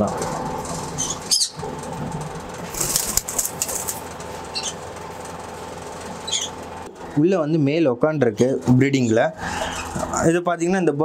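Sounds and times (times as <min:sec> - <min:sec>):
steady background hum: 0:00.0 - 0:11.0
wings fluttering: 0:00.6 - 0:06.7
bird chirps: 0:01.0 - 0:01.6, 0:04.5 - 0:04.8, 0:06.2 - 0:06.6.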